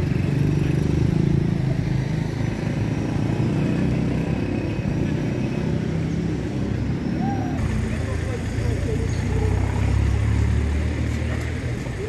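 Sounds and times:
vehicle engine running: 7.4 - 12.0.

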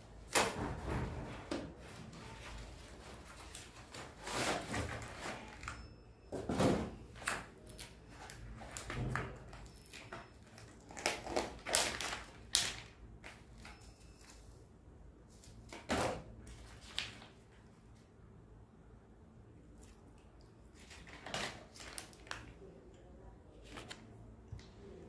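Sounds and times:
plastic packaging crinkling: 9.6 - 13.8, 20.7 - 22.6.

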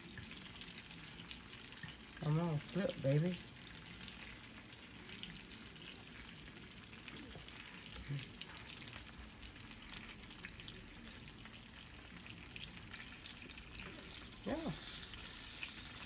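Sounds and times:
chicken sizzling in oil: 0.0 - 16.0.

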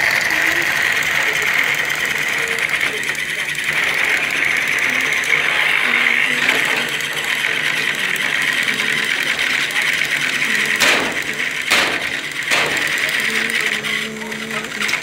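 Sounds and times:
toy train motors whirring: 0.0 - 15.0
sharp knocks: 10.8 - 13.0.

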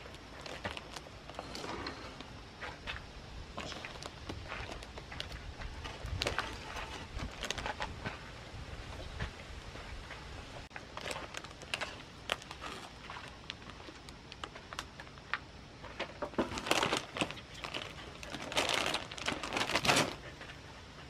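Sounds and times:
plastic chip bag crinkling: 0.0 - 1.9, 3.6 - 8.0, 10.7 - 15.3, 16.2 - 20.3.

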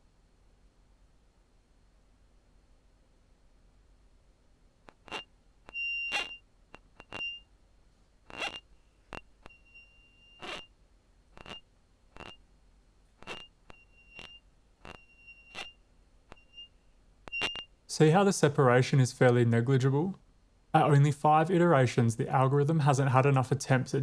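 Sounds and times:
short high-pitched squeak: 4.9 - 7.5, 8.3 - 10.7, 11.4 - 12.4, 13.2 - 17.8.

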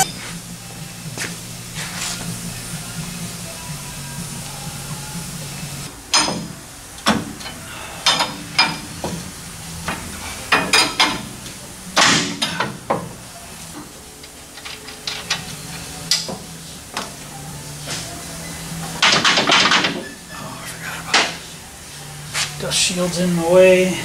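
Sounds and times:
tools clanking on metal: 6.1 - 9.2, 9.9 - 11.3, 12.0 - 13.1, 14.5 - 16.4.

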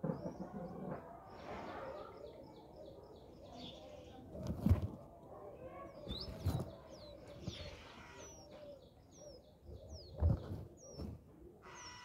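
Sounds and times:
birds chirping: 5.6 - 12.0.

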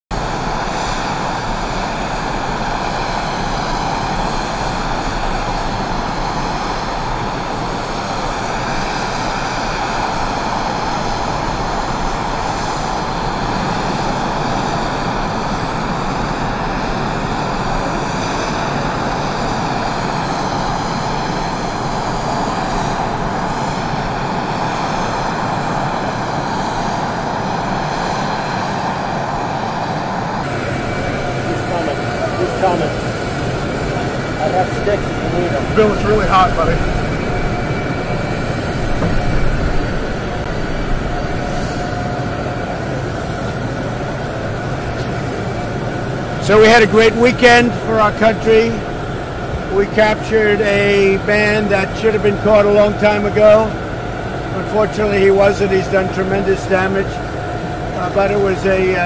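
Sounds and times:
aircraft engine running: 0.1 - 59.0
high whine: 0.1 - 59.0.

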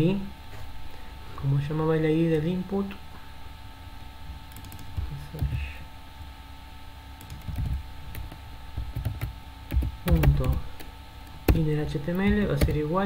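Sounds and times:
computer keyboard typing: 4.5 - 5.6, 7.2 - 13.0.

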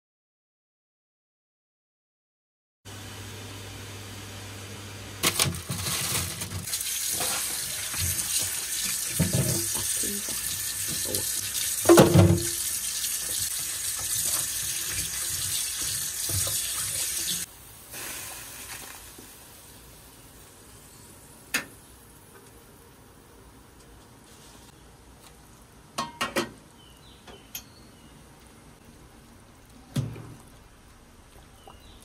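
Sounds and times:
pot boiling: 5.2 - 21.6, 24.7 - 32.0
tap running into sink: 7.2 - 12.6.

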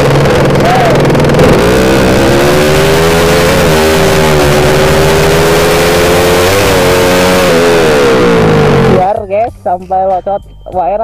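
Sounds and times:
motorcycle racing exhaust revving: 0.0 - 9.8.

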